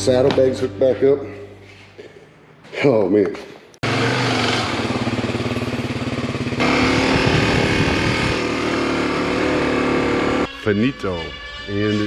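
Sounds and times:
motorcycle engine running: 3.8 - 10.5.

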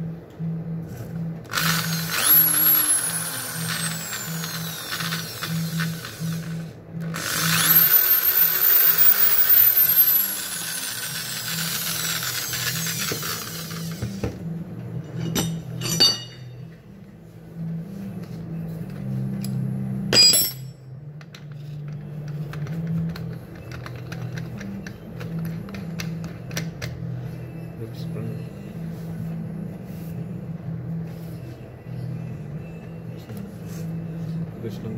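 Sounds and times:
electric drill motor whine: 1.5 - 14.2.

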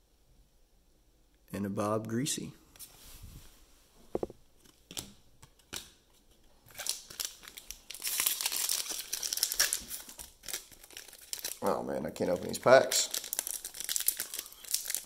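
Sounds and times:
foil wrapper crinkling: 6.7 - 15.0.

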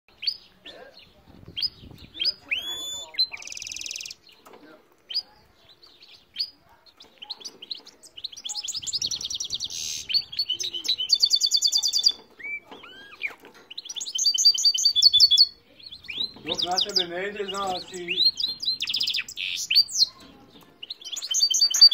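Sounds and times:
bird singing trills and twitters: 0.1 - 21.9
bird slurred whistles: 2.5 - 4.1.

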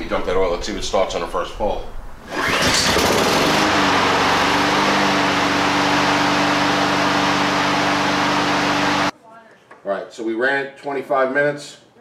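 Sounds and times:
lawn mower engine pull-started: 2.2 - 9.1.

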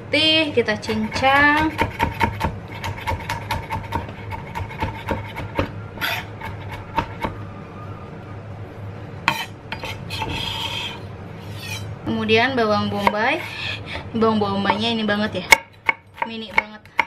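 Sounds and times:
knife scraping board: 0.8 - 7.2, 9.3 - 11.9, 12.9 - 14.1
knife chopping on cutting board: 0.9 - 7.4, 12.9 - 13.6, 15.5 - 17.0.

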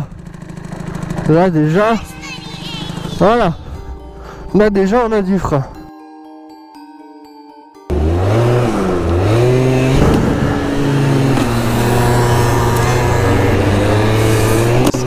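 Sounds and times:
scooter engine revving: 0.0 - 3.2, 7.9 - 15.0.

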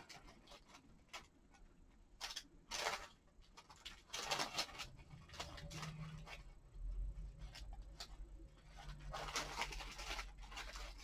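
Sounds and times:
cellophane bag crinkling: 0.0 - 11.0
paper pieces rustling: 2.2 - 6.6, 7.4 - 11.0.

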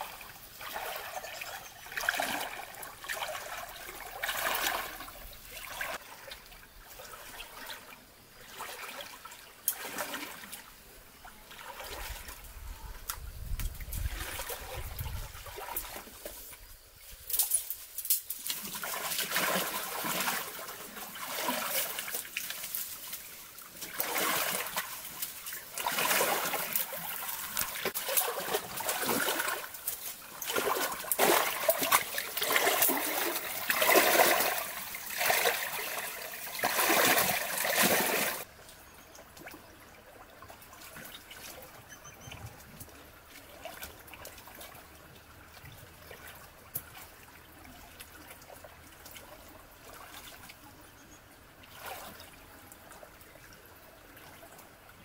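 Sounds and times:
water splashing from wading: 0.0 - 12.4, 13.8 - 16.3, 18.4 - 38.5, 51.5 - 55.0
stream trickling: 0.0 - 55.0.

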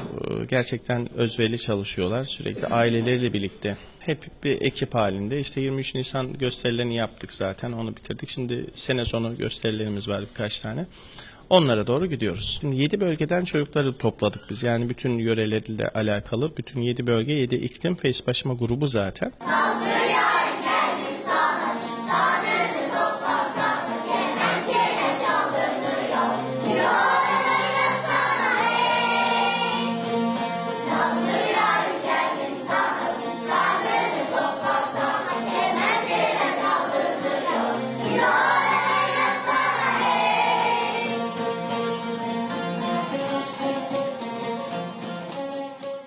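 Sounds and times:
children's choir singing: 19.4 - 41.4.

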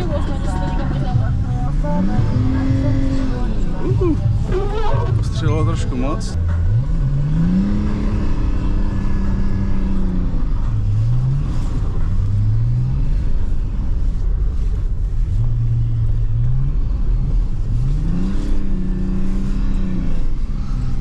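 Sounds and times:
diesel engine revving: 0.0 - 21.0
tyre and road rumble: 0.0 - 21.0.

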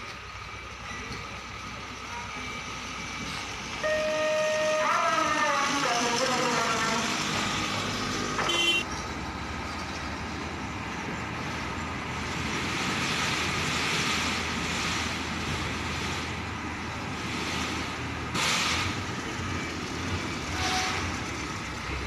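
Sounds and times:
truck engines rumbling: 0.0 - 22.0
brief high tone: 3.8 - 5.5.

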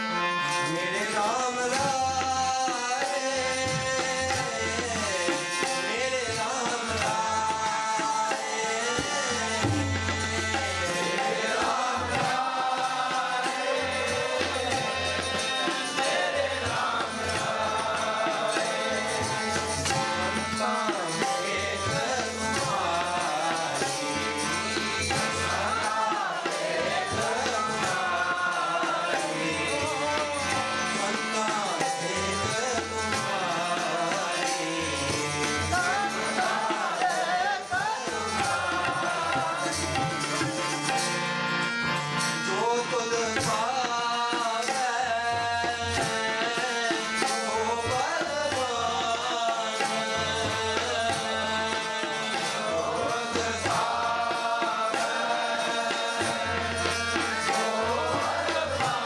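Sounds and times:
person singing a hymn: 0.0 - 41.6
harmonium chords: 0.0 - 59.0
tabla beat: 0.0 - 59.0.

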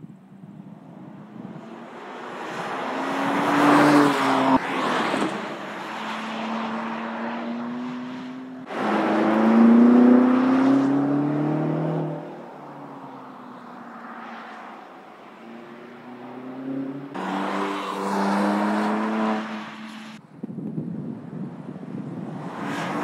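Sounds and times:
car exhaust passing by accelerating: 6.3 - 12.3.

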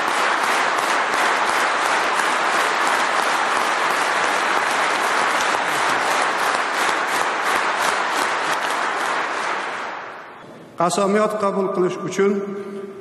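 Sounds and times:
audience applauding: 0.0 - 10.4.

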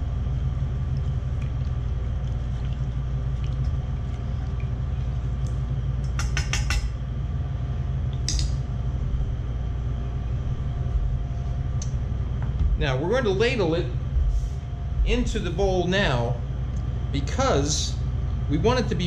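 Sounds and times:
steady low hum: 0.0 - 19.0
spoon clicking against bowl: 6.0 - 6.9.

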